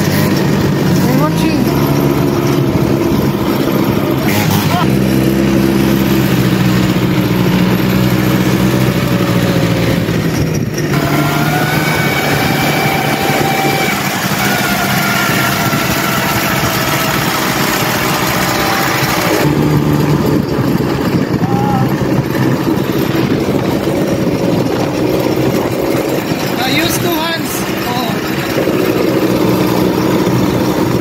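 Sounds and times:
quad bike engine: 0.0s - 31.0s
steady rushing noise: 15.3s - 31.0s.

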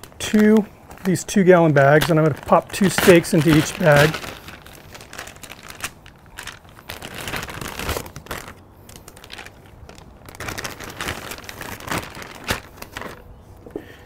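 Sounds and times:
plastic bag crinkling: 0.0s - 13.5s.

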